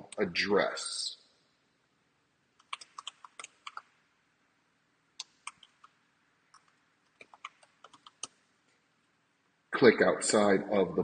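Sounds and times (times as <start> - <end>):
typing on computer keyboard: 2.6 - 3.9, 5.2 - 8.4.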